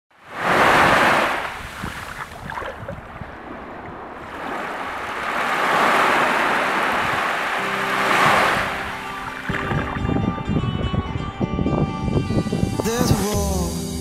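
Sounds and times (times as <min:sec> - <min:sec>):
waves washing up a sandy beach: 0:00.2 - 0:09.8.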